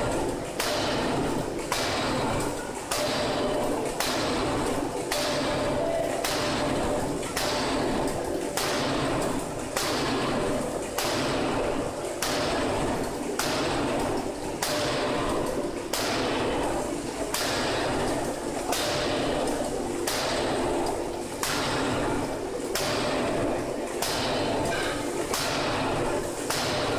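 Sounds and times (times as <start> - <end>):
forging hammer striking metal: 15.9 - 16.4, 24.0 - 25.8, 26.5 - 26.9.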